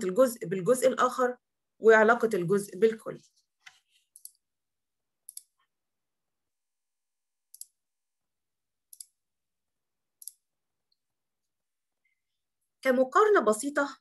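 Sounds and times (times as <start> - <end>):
computer mouse clicks: 3.6 - 4.4, 5.2 - 5.7, 7.5 - 7.8, 8.9 - 9.2, 10.2 - 11.0.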